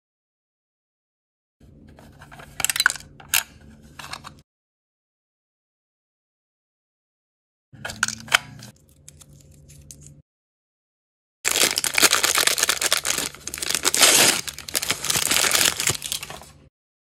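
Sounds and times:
wrapper crinkling: 11.5s - 16.6s.

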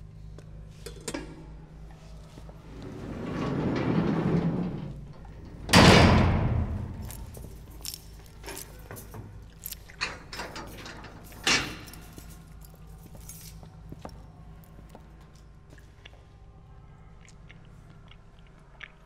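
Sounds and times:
light clicks and rattles: 3.2s - 14.2s.

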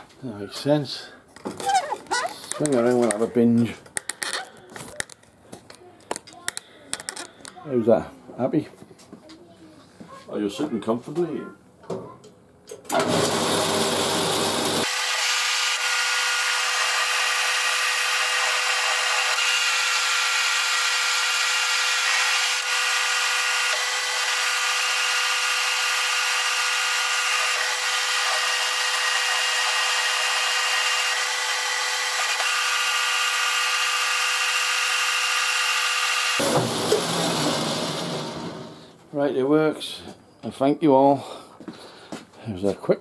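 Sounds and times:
metal lathe whining: 12.9s - 38.9s.

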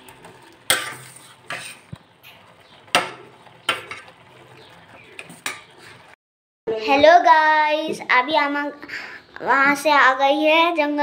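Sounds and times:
spoon stirring noodles in a pot: 0.0s - 6.2s.

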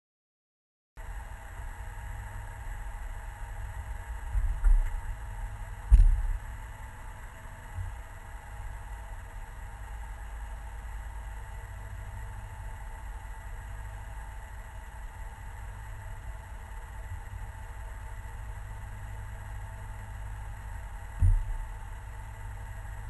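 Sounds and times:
muffled car engine idling: 1.0s - 23.0s
dull thumps: 21.2s - 21.7s.

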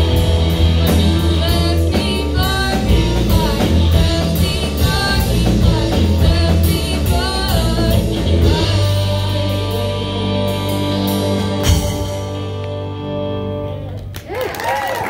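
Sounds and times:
rock band playing: 0.0s - 14.4s
woman singing: 0.5s - 11.9s.

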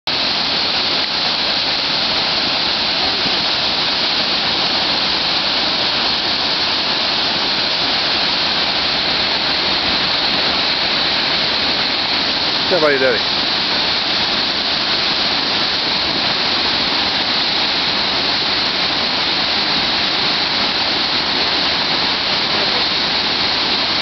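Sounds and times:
waterfall rushing: 0.1s - 24.0s.

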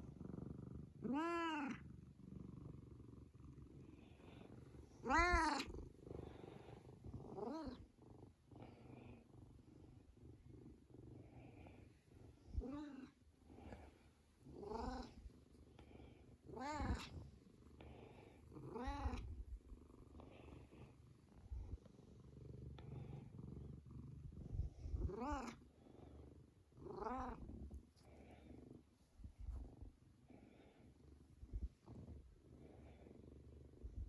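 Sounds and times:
cat purring: 0.0s - 34.0s
cat meowing: 5.0s - 5.7s, 18.7s - 19.3s.

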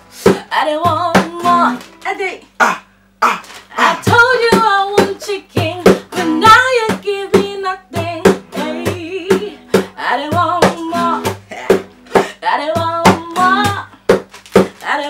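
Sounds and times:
strummed acoustic guitar: 0.0s - 14.9s
woman singing: 0.2s - 2.4s, 3.7s - 15.0s.

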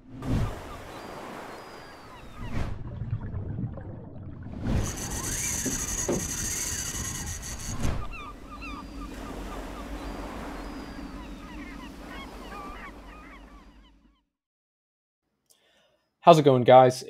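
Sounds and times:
birds chirping: 0.4s - 2.6s, 4.7s - 14.3s.

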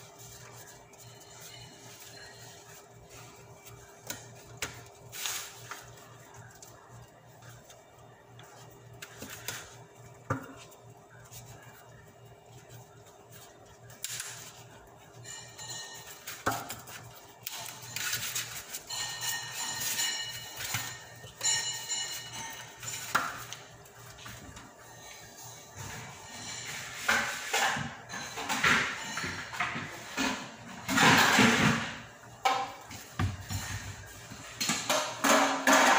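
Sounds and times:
background music with ringing tones: 0.2s - 4.5s, 14.5s - 27.0s.

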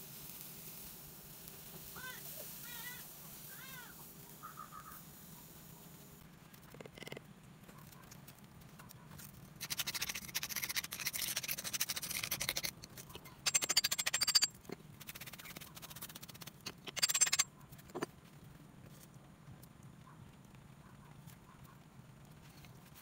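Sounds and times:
brush scrubbing metal: 9.6s - 17.4s.

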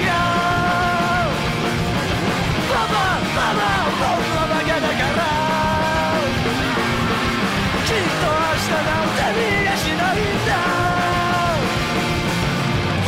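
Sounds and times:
man yelling and singing: 0.0s - 1.5s, 2.6s - 11.8s
punk rock band playing: 0.0s - 13.0s.

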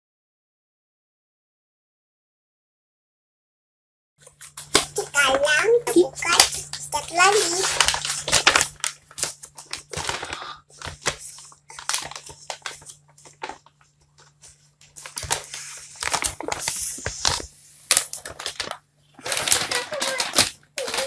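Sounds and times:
gift wrap rustling and crinkling: 4.2s - 21.0s.

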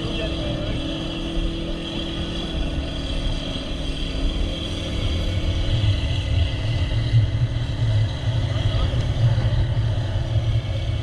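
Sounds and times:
boat engine droning: 0.0s - 11.0s
wind rumbling on microphone: 0.0s - 11.0s.

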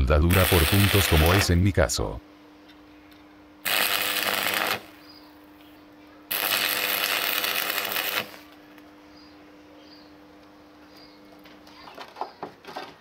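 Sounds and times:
arc welding crackling: 0.0s - 2.1s, 3.6s - 5.7s, 6.3s - 8.9s
faint steady hum: 0.0s - 13.0s.

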